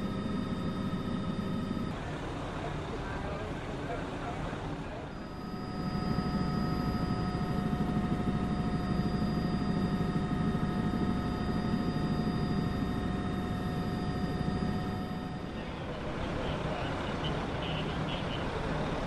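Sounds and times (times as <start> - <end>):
helicopter rotor noise: 0.0 - 19.0
high turbine whine: 0.0 - 19.0.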